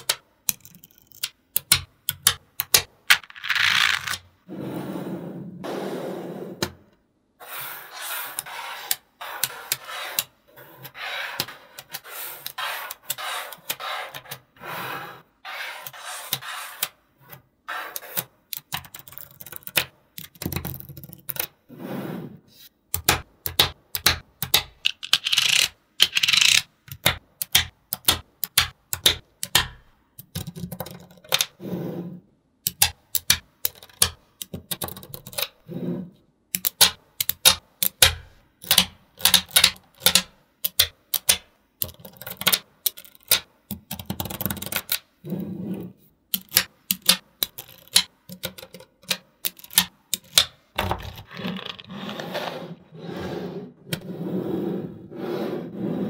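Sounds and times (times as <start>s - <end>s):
balls rubbing and rolling: 2.8s - 23.3s, 35.4s - 36.4s, 44.2s - 56.0s.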